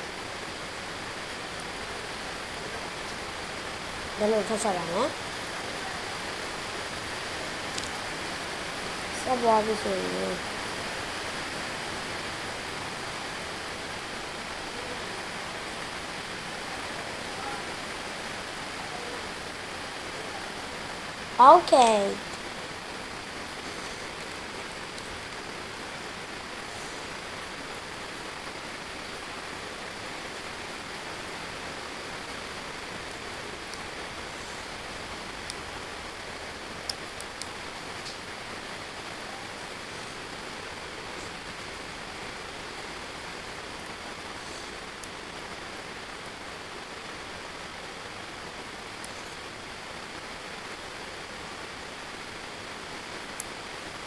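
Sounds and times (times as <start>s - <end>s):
room noise hiss: 0.0s - 54.0s.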